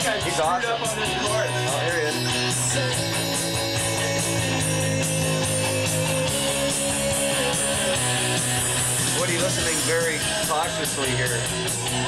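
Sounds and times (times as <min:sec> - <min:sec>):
bass guitar: 0:00.0 - 0:12.0
drums with cymbal beat: 0:00.0 - 0:12.0.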